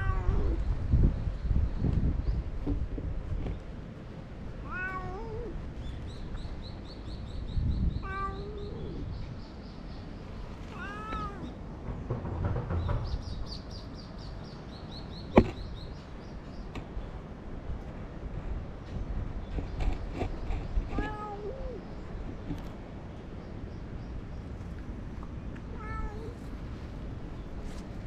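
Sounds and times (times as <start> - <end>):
cat meowing: 0.0 - 0.6, 4.6 - 5.6, 8.0 - 9.1, 10.7 - 11.5, 21.0 - 21.8, 25.7 - 26.5.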